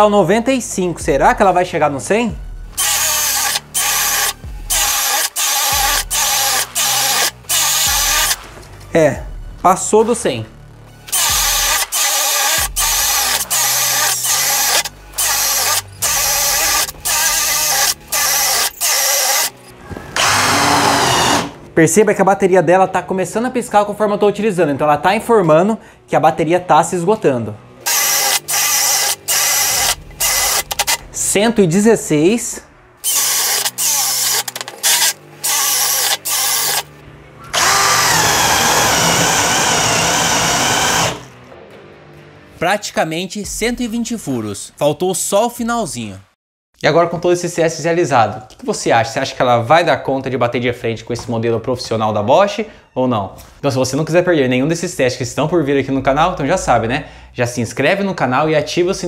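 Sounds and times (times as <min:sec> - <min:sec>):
cordless drill boring into wood: 0:02.8 - 0:08.4, 0:11.1 - 0:19.6, 0:20.2 - 0:21.6, 0:27.9 - 0:31.0, 0:33.0 - 0:36.9, 0:37.5 - 0:41.3.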